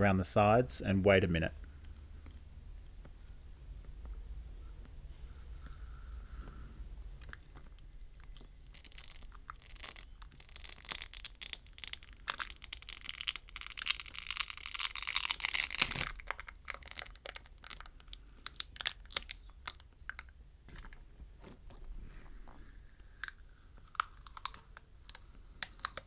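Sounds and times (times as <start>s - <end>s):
battery adhesive crackling and tearing: 7.4s - 20.3s, 23.1s - 26.0s.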